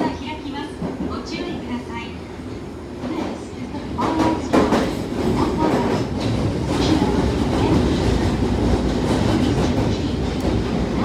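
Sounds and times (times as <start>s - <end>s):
train wheels rumbling on rails: 3.0s - 11.0s.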